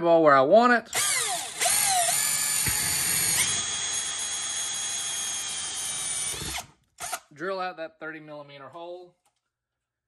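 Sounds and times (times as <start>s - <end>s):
cordless drill whining: 0.9s - 7.2s.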